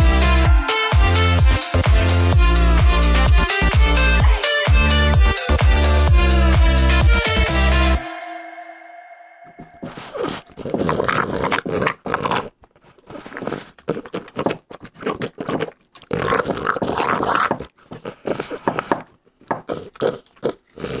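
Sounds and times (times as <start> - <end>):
dog licking and gnawing: 9.9 - 21.0.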